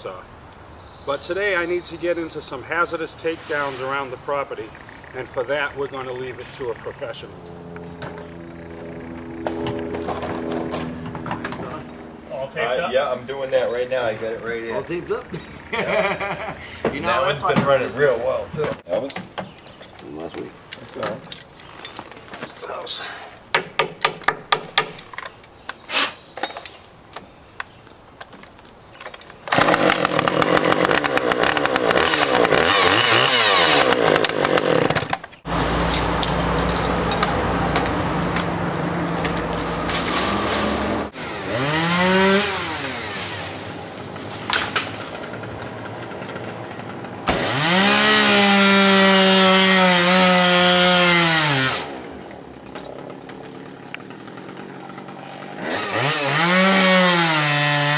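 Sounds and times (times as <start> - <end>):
chainsaw running: 29.5 - 57.9.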